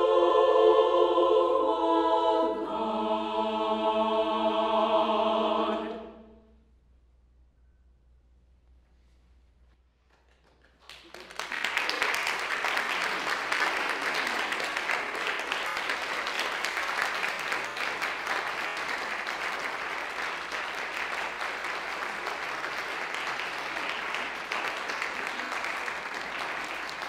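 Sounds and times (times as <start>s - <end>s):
audience applauding: 10.1s - 27.0s.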